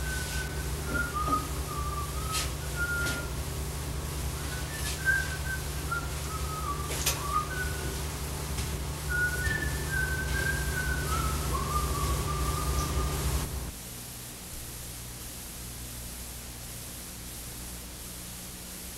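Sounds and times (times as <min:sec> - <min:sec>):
person whistling a tune: 0:00.0 - 0:03.3, 0:04.4 - 0:08.0, 0:09.1 - 0:13.3
low electrical hum: 0:00.0 - 0:18.9.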